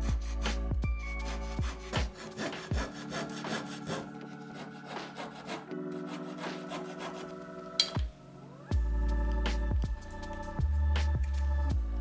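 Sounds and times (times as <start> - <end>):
scroll saw cutting wood: 1.2 - 7.4.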